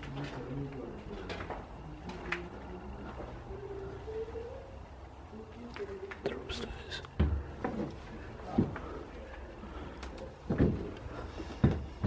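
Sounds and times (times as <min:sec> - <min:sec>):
footsteps on wooden boards: 0:07.2 - 0:09.0, 0:10.4 - 0:12.0.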